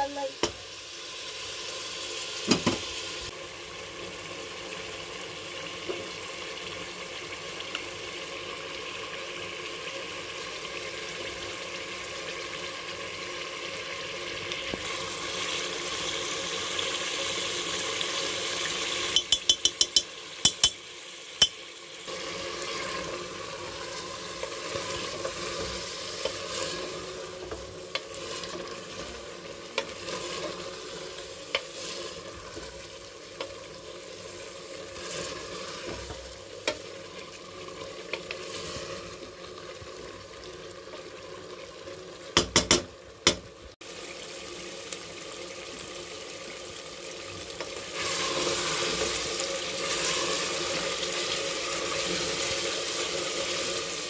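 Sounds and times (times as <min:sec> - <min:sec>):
meat and onions sizzling in a pot: 0:00.0 - 0:54.0
wooden spoon knocking against pot: 0:19.2 - 0:20.8, 0:42.4 - 0:43.4.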